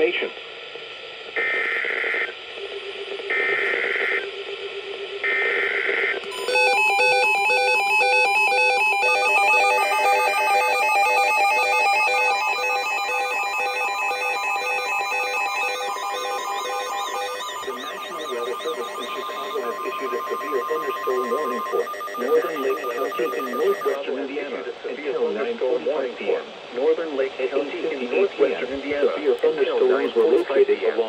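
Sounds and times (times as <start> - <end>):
warbling digital data tones: 6.3 - 24.0
weather alert radio alarm beeps: 6.4 - 24.0.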